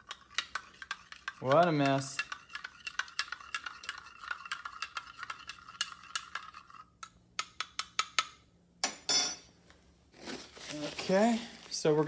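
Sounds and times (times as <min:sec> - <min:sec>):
stirrer clinking against glass beaker: 0:00.0 - 0:08.3.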